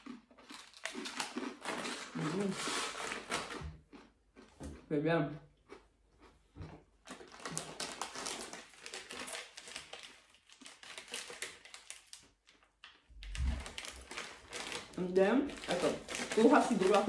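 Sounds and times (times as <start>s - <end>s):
plastic wrapper crinkling: 7.0s - 17.0s.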